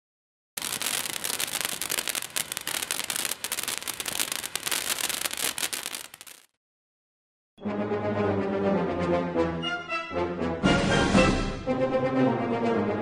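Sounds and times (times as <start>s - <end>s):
firework fountain hissing and crackling: 0.6s - 6.5s.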